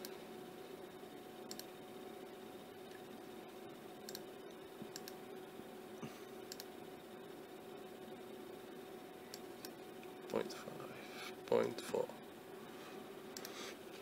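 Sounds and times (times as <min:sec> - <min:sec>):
faint electrical hum: 0:00.0 - 0:14.0
computer mouse clicking: 0:01.5 - 0:01.7, 0:04.1 - 0:05.2, 0:06.5 - 0:06.7, 0:09.3 - 0:10.4, 0:13.4 - 0:13.6.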